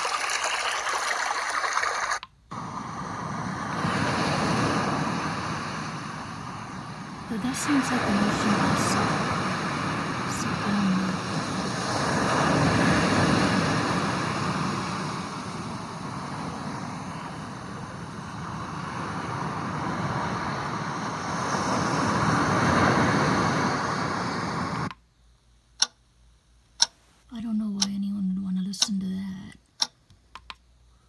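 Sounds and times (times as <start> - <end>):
ocean surf from speaker: 2.5 - 24.9
sharp tick: 25.8 - 26.0, 29.8 - 30.6.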